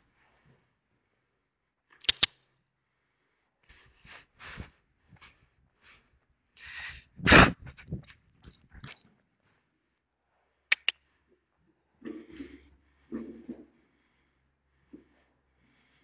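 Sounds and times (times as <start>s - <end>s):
sharp double click: 2.0s - 2.4s, 10.7s - 11.0s.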